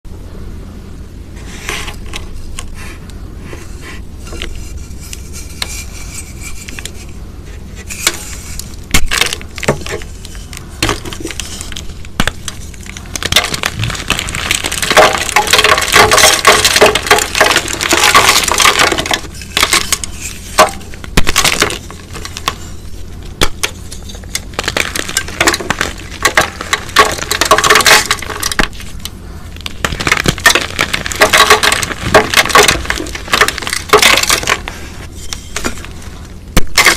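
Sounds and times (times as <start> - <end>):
powder cylinder crushed by hands: 8.0 - 36.9.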